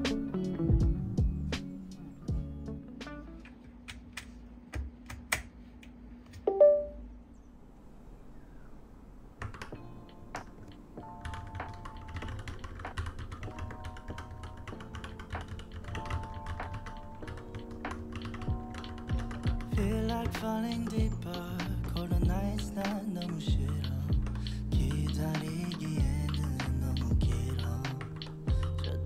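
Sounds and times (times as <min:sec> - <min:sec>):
background music: 0:00.0 - 0:04.1, 0:06.5 - 0:07.1, 0:09.7 - 0:29.0
mechanical keyboard typing: 0:09.4 - 0:29.0.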